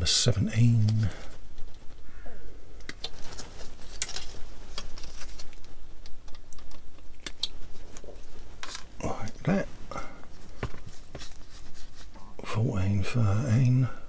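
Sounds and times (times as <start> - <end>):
plastic parts clicking and rattling: 2.8 - 8.9.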